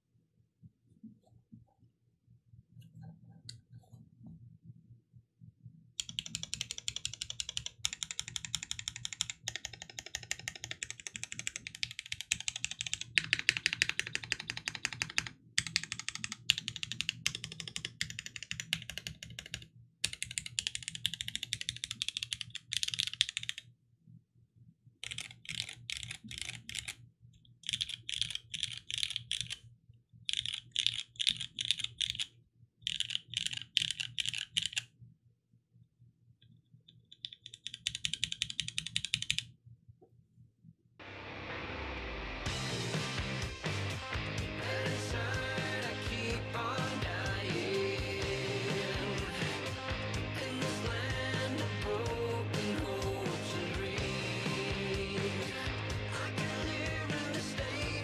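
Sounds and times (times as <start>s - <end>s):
mechanical keyboard typing: 6.0s - 23.6s, 25.0s - 27.0s, 27.6s - 29.6s, 30.3s - 34.9s, 37.1s - 39.5s.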